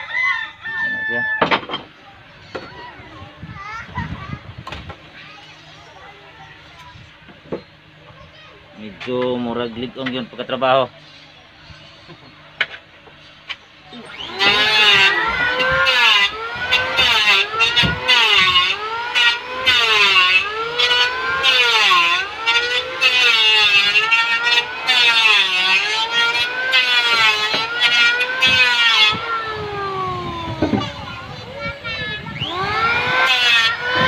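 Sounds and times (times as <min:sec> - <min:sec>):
power tool motor whine: 0:13.8 - 0:34.0.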